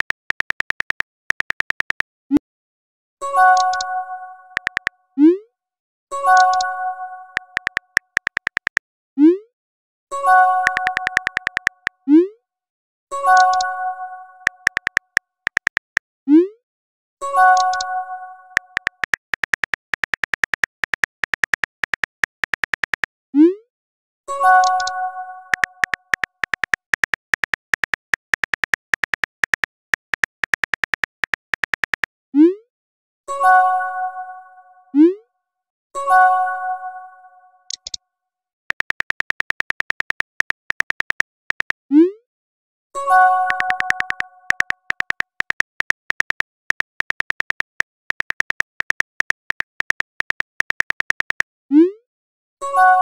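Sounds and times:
phone keyboard tap clicks: 0.0 - 2.0, 4.6 - 4.9, 7.4 - 8.8, 10.6 - 11.9, 14.5 - 16.0, 18.6 - 23.1, 25.5 - 32.1, 38.7 - 41.8, 43.5 - 51.4.

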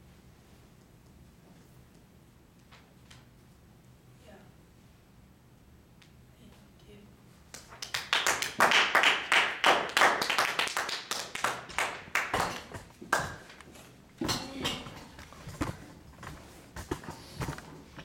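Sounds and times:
small audience clapping: 7.5 - 13.9.

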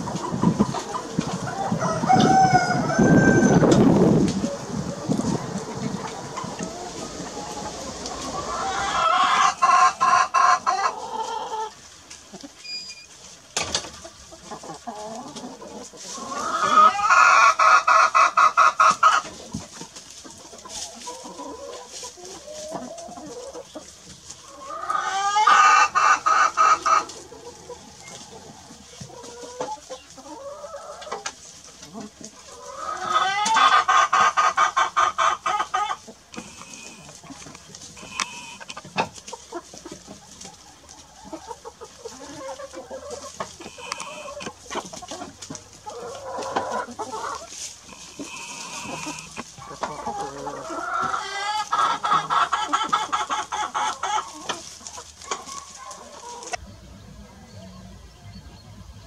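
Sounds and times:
hens clucking: 0.0 - 59.0
rooster crowing: 1.5 - 3.9.

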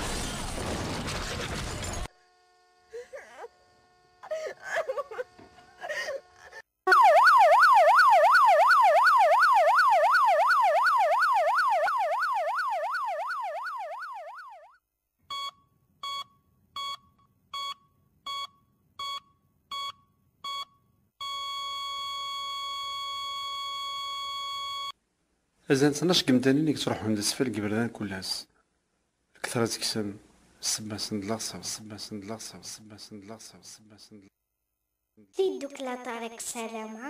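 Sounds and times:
electronic warbling siren: 6.9 - 14.8
short beeps: 15.3 - 24.9.

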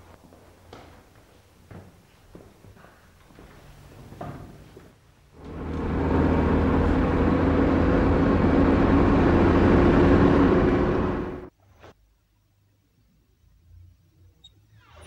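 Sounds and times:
car engine: 5.4 - 11.5
road noise: 5.4 - 11.5.

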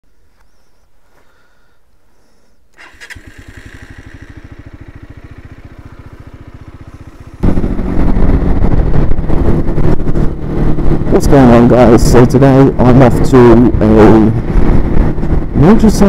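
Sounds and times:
motorcycle electric starter cranking: 2.7 - 4.8
motorcycle engine idling: 2.8 - 16.0
motorcycle riding with wind noise: 2.8 - 16.0.

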